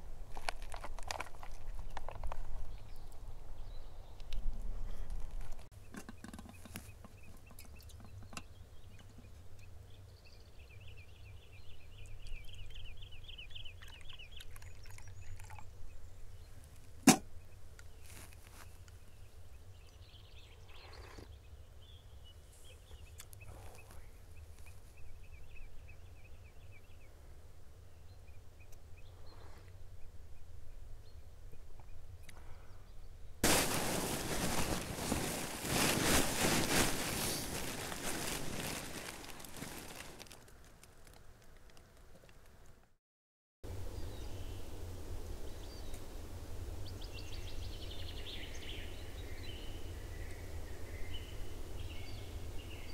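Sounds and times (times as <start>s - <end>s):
close rustling: 33.4s - 41.5s.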